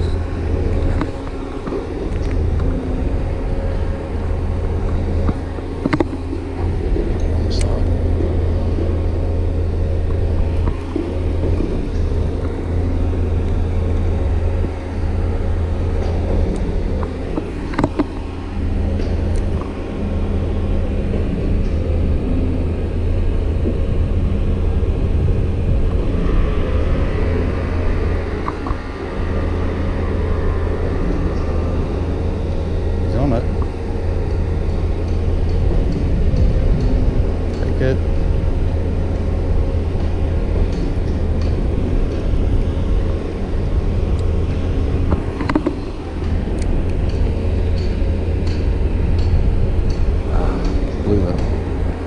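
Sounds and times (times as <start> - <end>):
city mechanical rumble: 0.0 - 52.0.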